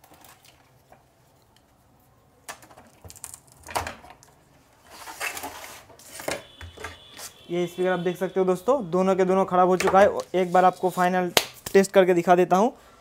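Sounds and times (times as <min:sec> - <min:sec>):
rustling and scraping: 0:04.7 - 0:07.4.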